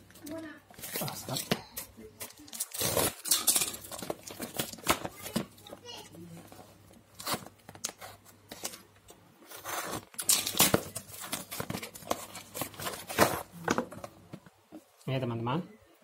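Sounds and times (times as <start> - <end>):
knife cutting cardboard: 9.4 - 13.5.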